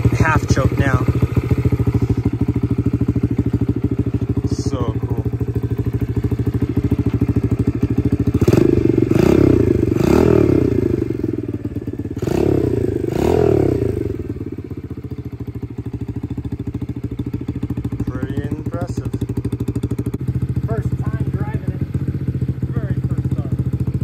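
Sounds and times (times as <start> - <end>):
dirt bike engine revving: 0.0 - 14.9
dirt bike engine idling: 0.0 - 24.0.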